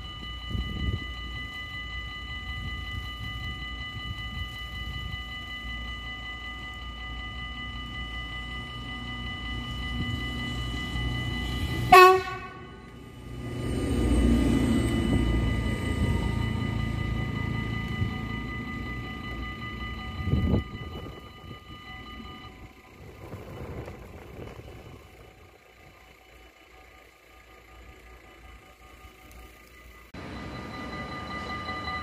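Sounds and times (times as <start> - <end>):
level-crossing warning bell: 0.0 - 32.0
passing train rumble: 0.0 - 32.0
train horn blast: 11.8 - 12.8.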